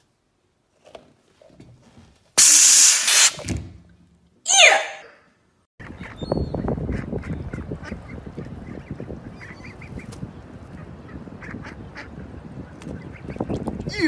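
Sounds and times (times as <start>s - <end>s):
outdoor hiss: 2.4s - 3.6s.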